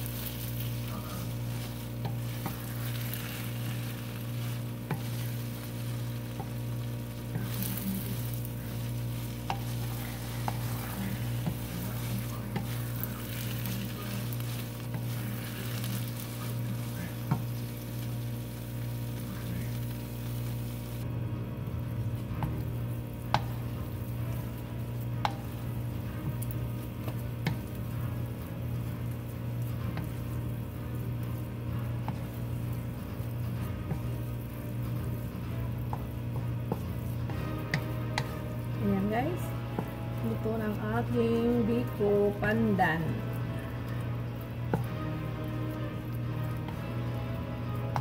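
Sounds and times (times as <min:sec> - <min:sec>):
spatula stirring sticky rice: 0:00.0 - 0:21.0, 0:22.0 - 0:48.0
soft sizzling: 0:00.0 - 0:48.0
steady low hum: 0:00.0 - 0:48.0
spatula knocking pan: 0:01.6 - 0:15.9, 0:26.3 - 0:27.8, 0:35.7 - 0:38.4.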